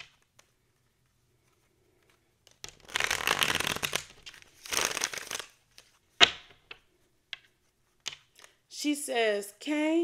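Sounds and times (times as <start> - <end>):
cards riffle shuffled: 2.0 - 6.8.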